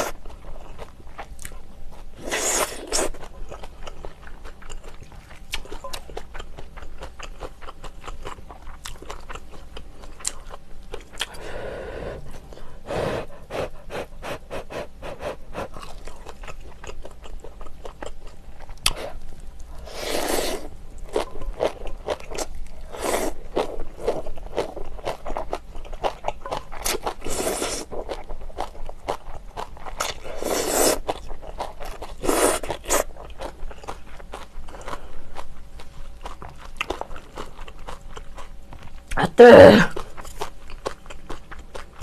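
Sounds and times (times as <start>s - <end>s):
wet chewing: 2.5s - 11.4s, 13.3s - 39.2s
person slurping noodles: 19.8s - 20.7s, 30.4s - 31.0s.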